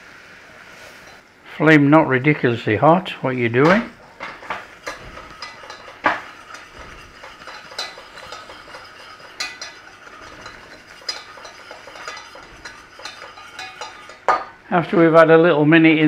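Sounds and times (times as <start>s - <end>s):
wire whisk scraping a saucepan: 1.0s - 1.2s, 3.6s - 14.6s.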